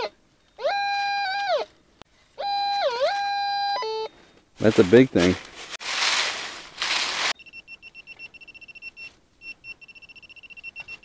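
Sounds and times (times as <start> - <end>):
metal detector probe beeping: 2.4 - 4.1, 7.3 - 11.0
hand rustling dry leaves: 4.6 - 7.4.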